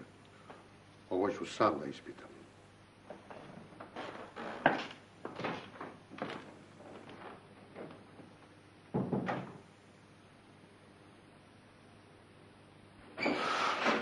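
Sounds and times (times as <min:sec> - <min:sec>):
door knocks and thuds: 0:08.9 - 0:09.6.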